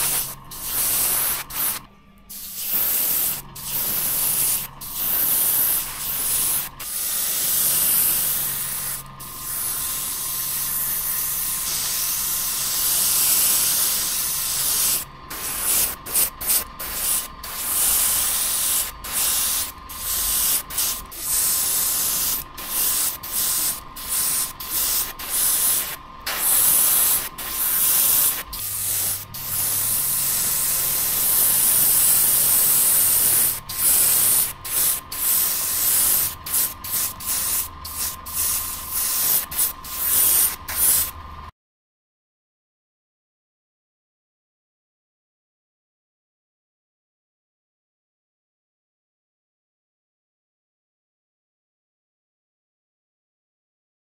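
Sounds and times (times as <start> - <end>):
airbrush spraying hiss: 0.0 - 41.2.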